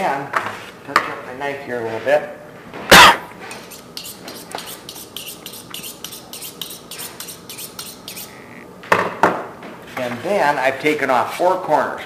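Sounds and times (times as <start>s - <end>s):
knife scraping on sharpening steel: 3.5s - 8.6s.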